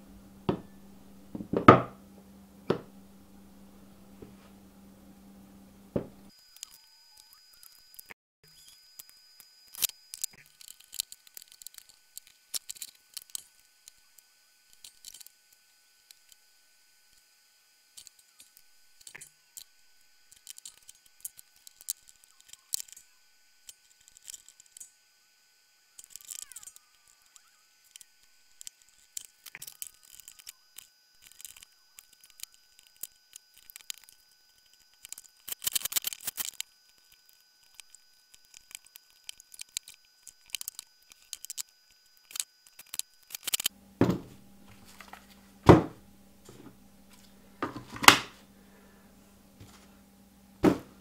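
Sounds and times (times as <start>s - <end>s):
plastic and metal parts clicking: 26.0s - 43.7s
parts clattering: 42.2s - 48.4s.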